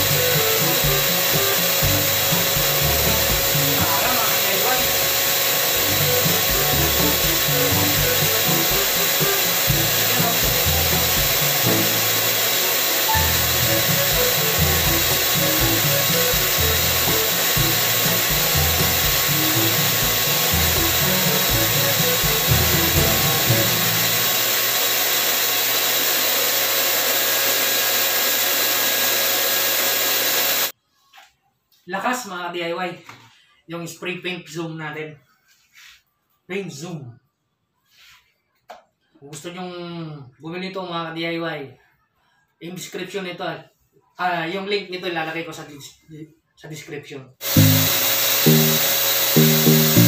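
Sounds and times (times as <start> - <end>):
background music: 0.0 - 24.4, 47.4 - 50.0
paint sprayer blower running: 0.0 - 30.7, 47.4 - 50.0.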